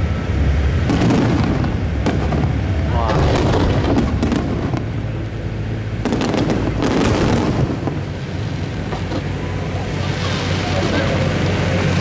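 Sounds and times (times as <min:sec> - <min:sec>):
firework shells bursting: 0:00.8 - 0:05.1.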